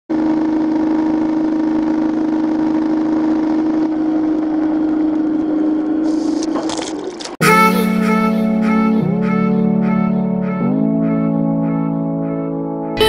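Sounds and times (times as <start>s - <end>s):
jet boat engine running: 0.1s - 7.4s.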